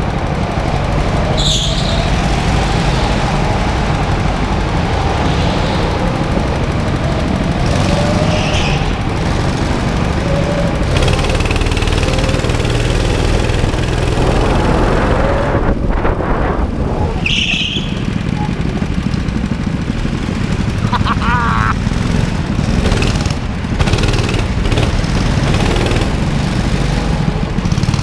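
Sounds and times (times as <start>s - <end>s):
go-kart engines rumbling: 0.0s - 28.0s.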